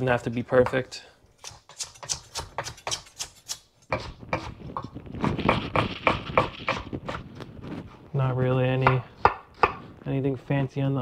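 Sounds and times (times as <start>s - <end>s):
knife chopping on wooden board: 1.4s - 3.3s.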